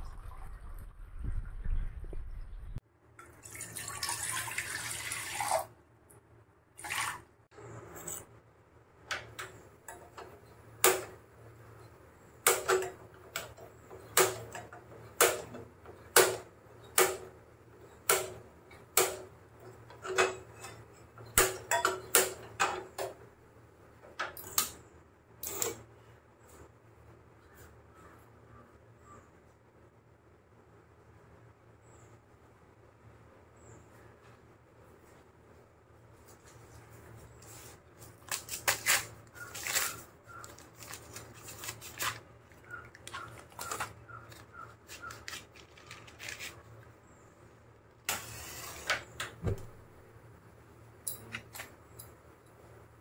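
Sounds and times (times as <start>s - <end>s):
water running: 3.3s - 5.7s, 6.8s - 7.3s.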